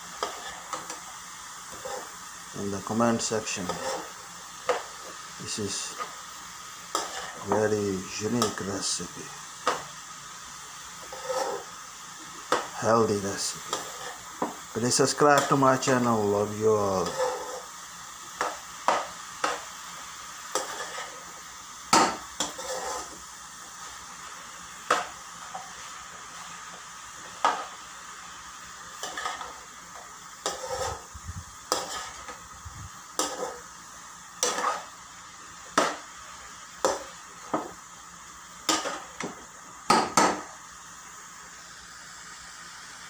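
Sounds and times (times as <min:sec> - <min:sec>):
food sizzling: 0:00.0 - 0:43.0
metal spatula scraping pan: 0:00.2 - 0:01.0, 0:01.7 - 0:02.2, 0:03.4 - 0:04.9, 0:06.9 - 0:07.6, 0:11.0 - 0:11.8, 0:13.7 - 0:14.3, 0:15.3 - 0:15.9, 0:17.0 - 0:17.7, 0:20.5 - 0:21.3, 0:22.0 - 0:23.2, 0:28.9 - 0:32.4, 0:33.2 - 0:33.7, 0:34.4 - 0:34.9.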